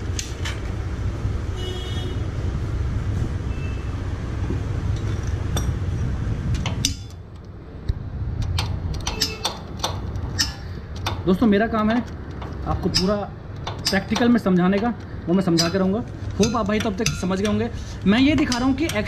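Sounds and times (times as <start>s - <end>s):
metallic clinks and taps: 8.4s - 19.0s.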